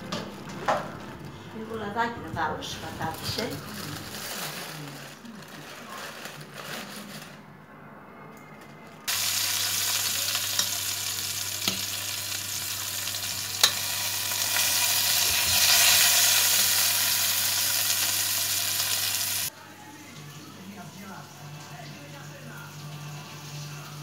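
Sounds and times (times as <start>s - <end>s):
potatoes sizzling in oil: 9.1s - 19.5s.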